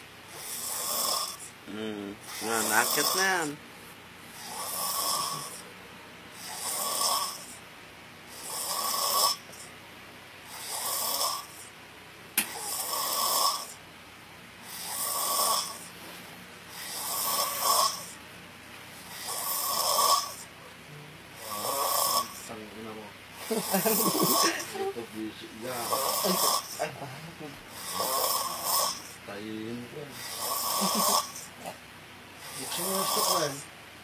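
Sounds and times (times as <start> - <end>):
man snoring: 0.3 - 3.6, 4.4 - 5.7, 6.4 - 7.6, 8.3 - 9.7, 10.5 - 11.7, 12.5 - 13.8, 14.6 - 15.9, 16.7 - 18.2, 19.1 - 20.5, 21.4 - 22.5, 23.4 - 24.8, 25.7 - 27.0, 27.7 - 29.3, 30.1 - 31.6, 32.4 - 33.7.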